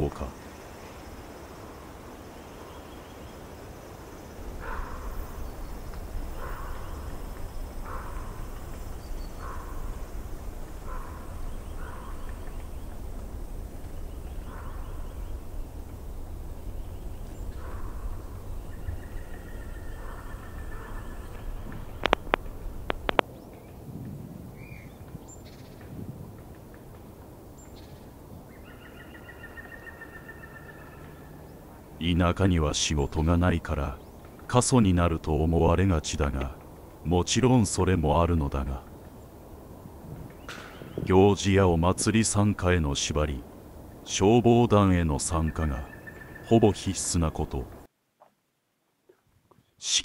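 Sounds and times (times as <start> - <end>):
low rumble: 4.0 - 25.2
bird short harsh calls: 4.4 - 23.2.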